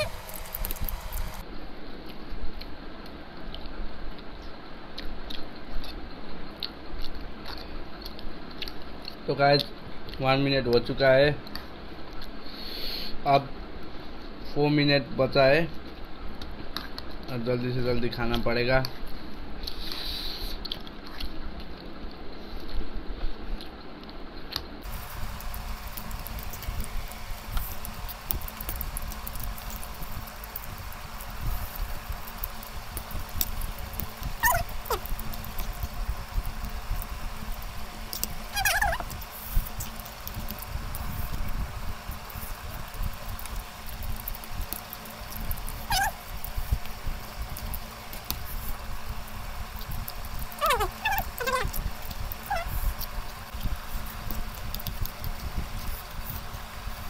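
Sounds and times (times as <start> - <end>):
people chewing noodles: 19.0 - 57.0.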